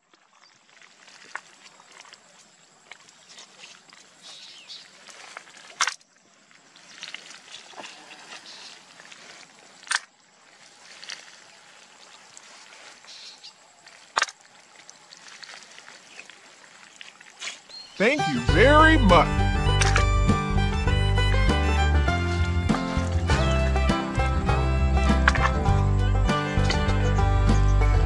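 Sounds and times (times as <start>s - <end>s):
faint outdoor background noise: 0.0s - 20.1s
sharp clicks or knocks: 19.7s - 20.3s, 25.1s - 25.6s.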